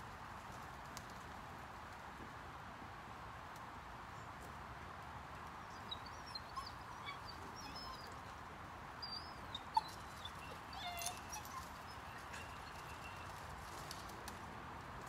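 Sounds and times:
birds chirping: 5.6 - 14.0.

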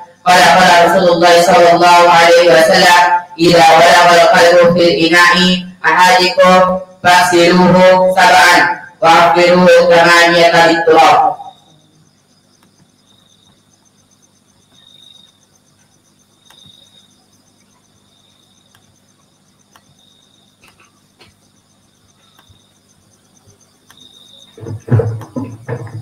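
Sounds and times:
fast even insect trill: 0.0 - 26.0
insect chirping: 0.0 - 26.0
soft clicks: 19.6 - 20.0, 23.8 - 24.2.

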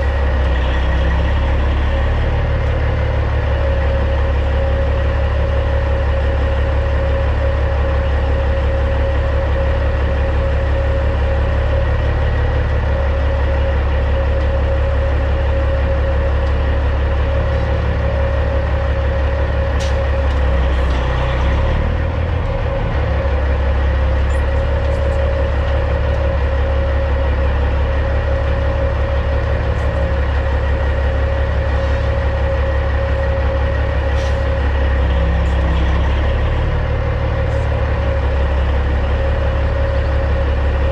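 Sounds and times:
truck diesel engine running: 0.0 - 40.9.

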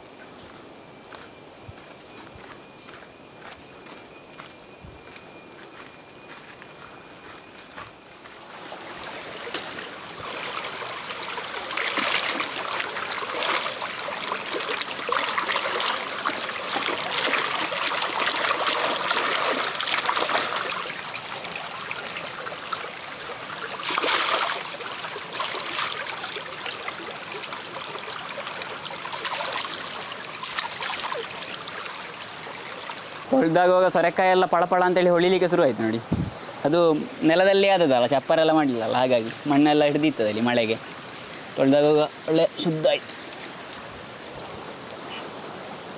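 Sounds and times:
stream running over rocks: 1.1 - 45.9
splashing in water: 8.6 - 22.7, 23.6 - 33.0.

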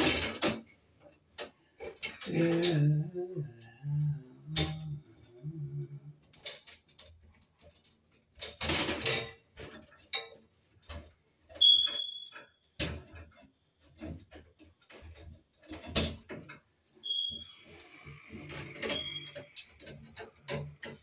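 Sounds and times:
short high squeak: 17.0 - 17.7, 18.9 - 19.4.

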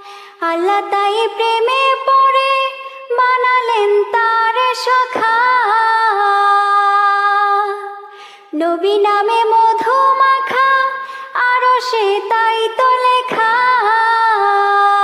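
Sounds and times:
woman breathing: 0.0 - 0.4, 8.0 - 8.6, 11.0 - 11.4
woman singing devotional song: 0.0 - 15.0.

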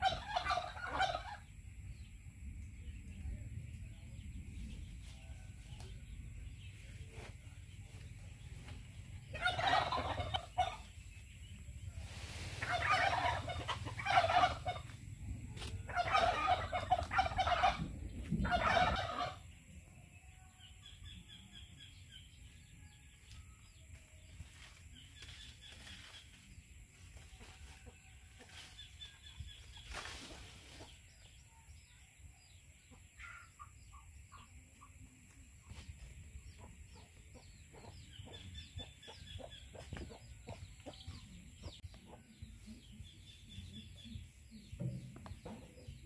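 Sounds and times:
domestic fowl calling loudly: 0.0 - 1.4, 9.2 - 10.9, 12.5 - 15.0, 15.6 - 19.5.

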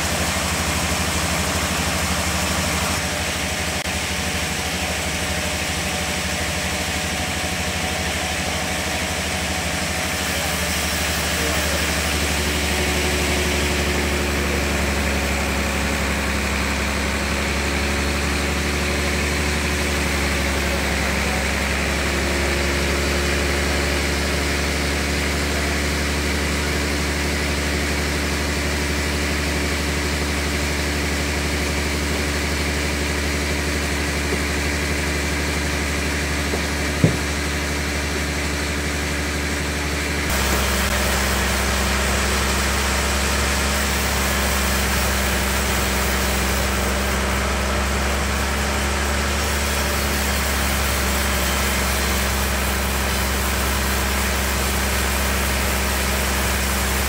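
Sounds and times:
sawmill machinery humming: 0.0 - 57.0
sharp knock: 36.5 - 37.4.

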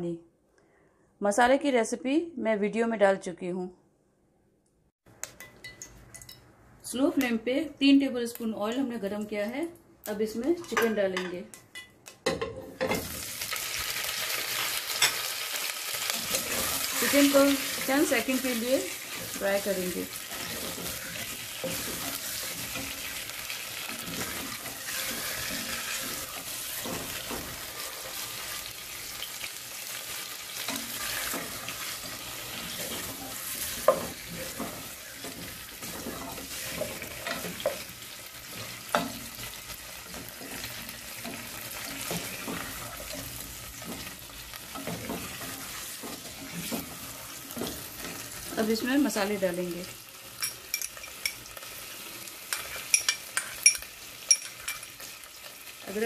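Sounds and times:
chicken sizzling in hot oil: 12.9 - 56.0
spatula scraping and knocking pot: 19.1 - 23.2, 23.8 - 28.5, 30.6 - 39.5, 40.1 - 48.6.

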